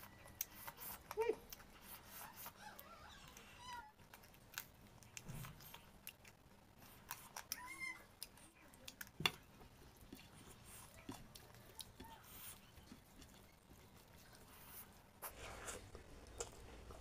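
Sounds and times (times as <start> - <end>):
chewing and lip smacks: 0.0 - 17.0.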